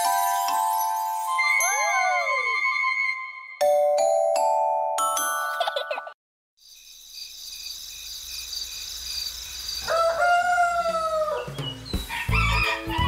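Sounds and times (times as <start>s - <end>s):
rooster crowing: 9.8s - 13.0s
cheerful music with bass beat: 11.7s - 13.0s.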